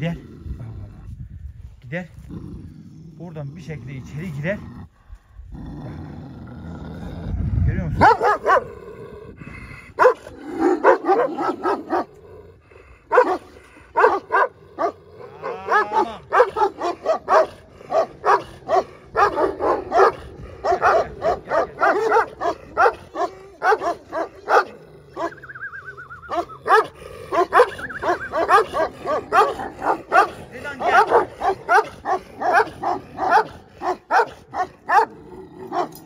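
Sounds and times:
dogs barking: 8.0 - 8.8, 10.0 - 12.2, 13.1 - 36.0
dog whining: 25.2 - 26.8, 27.4 - 28.6.

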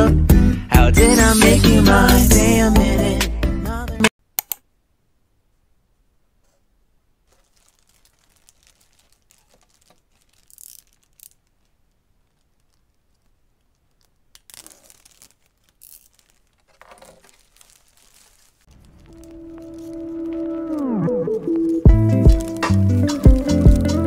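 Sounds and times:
plastic bag crinkling and tearing: 7.2 - 23.6.

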